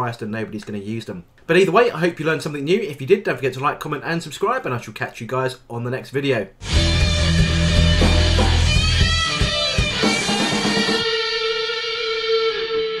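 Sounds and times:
guitar-led music: 0:06.6 - 0:13.0.

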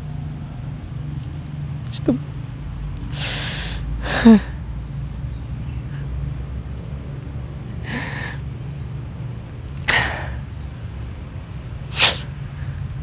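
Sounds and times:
man sniffing and gasping: 0:03.1 - 0:04.5, 0:11.9 - 0:12.2.

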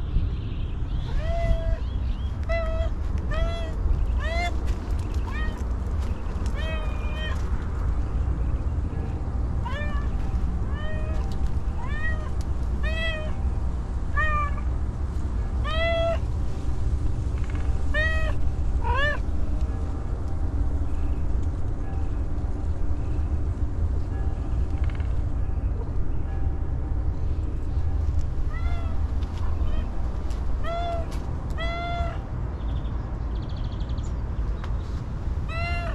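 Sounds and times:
steady low rumble: 0:00.0 - 0:35.9
cat meowing: 0:01.1 - 0:01.8, 0:02.4 - 0:04.6, 0:05.3 - 0:05.6, 0:06.5 - 0:07.4, 0:09.6 - 0:13.4, 0:14.1 - 0:14.6, 0:15.6 - 0:16.2, 0:17.9 - 0:19.2, 0:28.5 - 0:29.0, 0:30.6 - 0:32.2, 0:35.5 - 0:35.9.

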